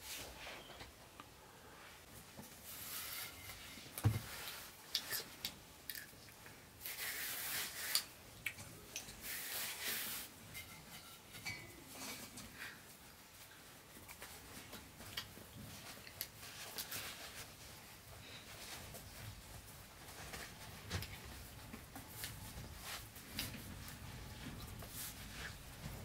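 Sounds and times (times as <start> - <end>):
hands rubbing dough on cloth: 9.2 - 10.4, 13.7 - 26.0.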